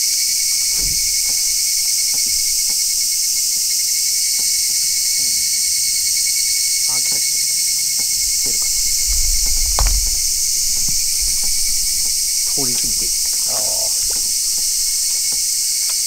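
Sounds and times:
cicadas shrilling: 0:00.0 - 0:16.0
faint ticks: 0:00.0 - 0:16.0.

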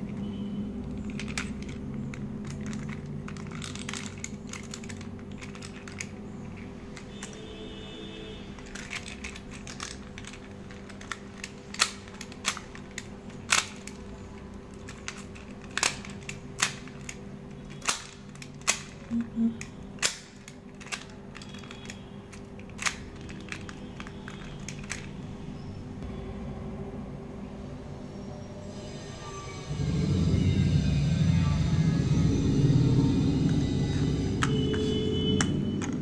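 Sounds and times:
plastic toy car clicking on tiles: 0:00.1 - 0:07.4, 0:08.6 - 0:25.2.

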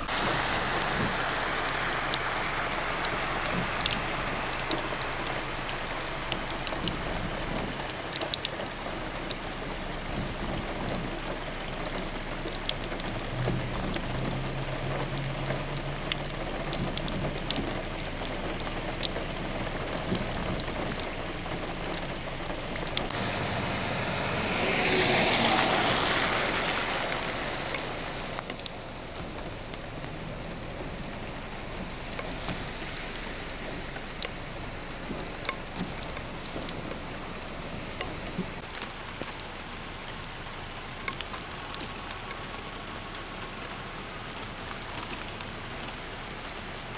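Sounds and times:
low engine hum: 0:00.0 - 0:46.9
rain pattering on a street: 0:00.0 - 0:46.9
tyres hissing through floodwater: 0:00.0 - 0:46.9
vehicles driving through water: 0:00.0 - 0:46.9.

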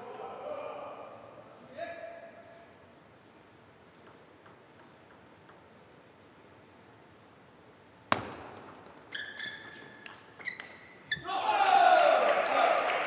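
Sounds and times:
table tennis ball ticking: 0:04.0 - 0:05.8
racket hitting ball: 0:08.1 - 0:09.0
shoes squeaking on floor: 0:08.7 - 0:11.3.

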